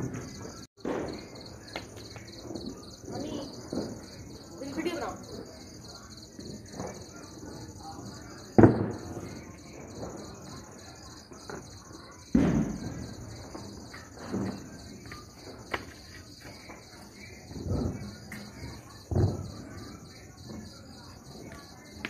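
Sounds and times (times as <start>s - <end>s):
crickets chirping: 0.0s - 22.0s
loud bang: 12.3s - 13.4s.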